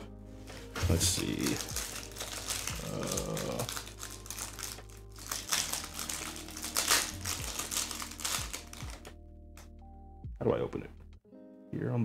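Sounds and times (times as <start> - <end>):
plastic wrapper crinkling: 0.5 - 9.2.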